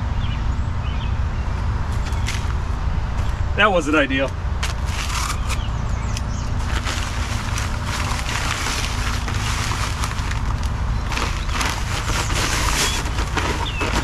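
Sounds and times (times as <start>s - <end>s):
steady low rumble: 0.0s - 14.0s
dry concrete mix pouring: 6.6s - 14.0s.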